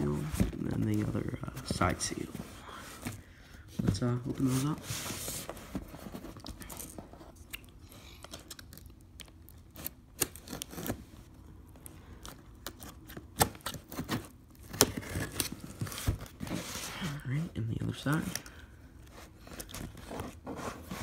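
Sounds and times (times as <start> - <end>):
tape scraping and tearing: 9.7 - 11.1.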